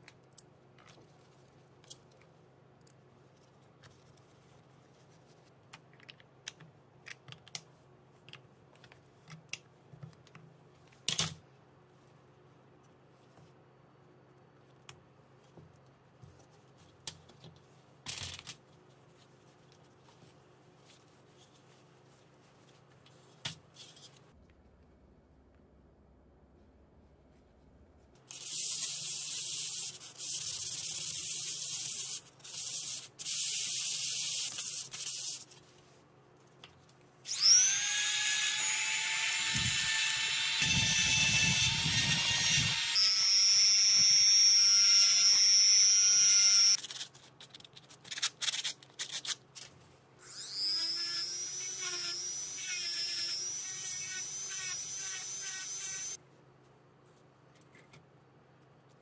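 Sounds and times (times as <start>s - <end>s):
rotary tool high-pitched whine: 37.3s - 46.8s, 50.2s - 56.2s.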